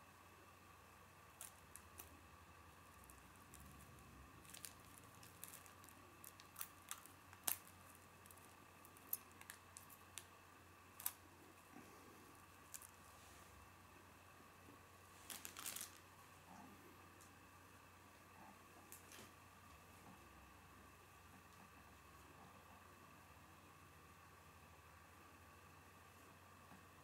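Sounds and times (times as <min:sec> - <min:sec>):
faint room hum: 0:00.0 - 0:27.0
plastic crinkling: 0:01.4 - 0:02.2, 0:02.8 - 0:11.2, 0:12.3 - 0:13.1, 0:15.2 - 0:16.1.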